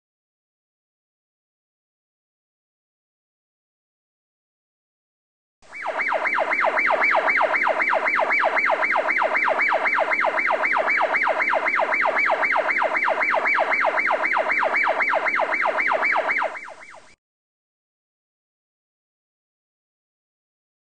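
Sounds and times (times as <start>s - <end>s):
electronic yelp siren: 5.6s - 17.2s.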